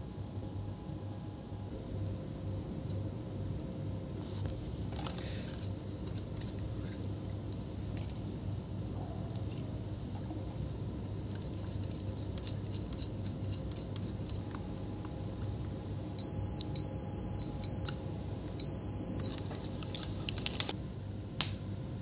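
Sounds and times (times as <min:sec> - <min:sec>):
multimeter continuity beeps: 0:16.2 - 0:19.4.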